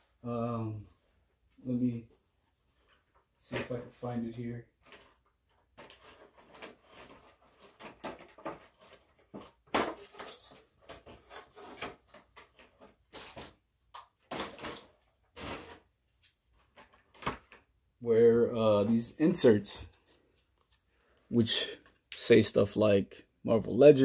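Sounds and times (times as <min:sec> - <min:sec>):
hand rummaging and rustling: 0:04.8 - 0:13.6
objects clattering: 0:04.8 - 0:15.9.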